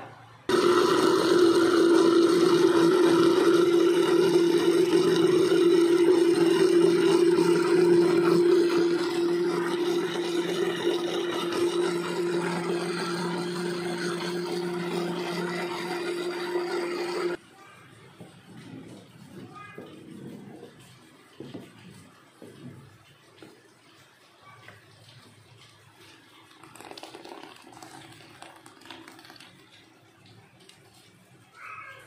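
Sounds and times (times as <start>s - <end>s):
electric blender running: 0.5s - 17.4s, 26.6s - 29.5s.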